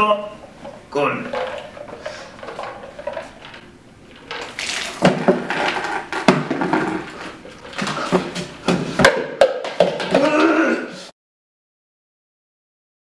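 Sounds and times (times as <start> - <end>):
man shouting: 10.2 - 11.0.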